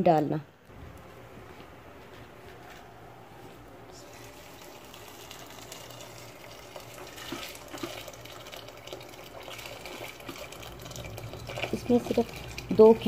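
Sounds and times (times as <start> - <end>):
water pouring from kettle: 4.0 - 13.0.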